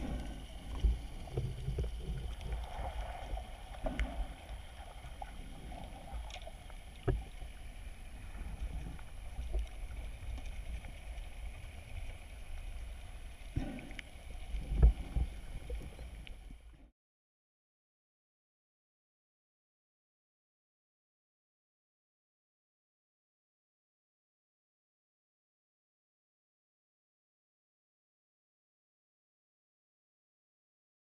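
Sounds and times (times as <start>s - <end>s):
muffled underwater water rumble: 0.0s - 16.9s.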